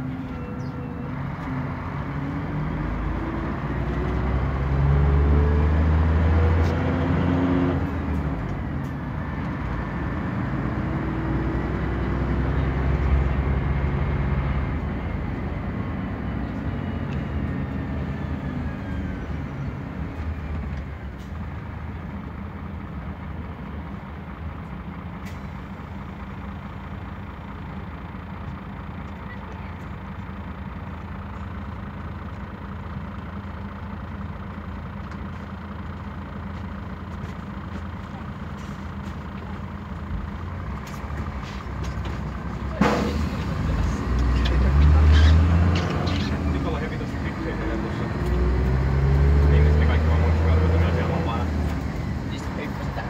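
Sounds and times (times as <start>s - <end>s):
diesel bus engine running: 0.0s - 53.0s.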